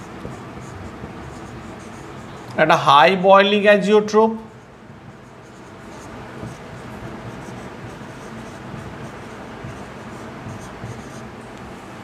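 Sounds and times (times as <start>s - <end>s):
marker writing on whiteboard: 0.0s - 3.2s, 4.4s - 11.6s
low background hum: 0.0s - 12.0s.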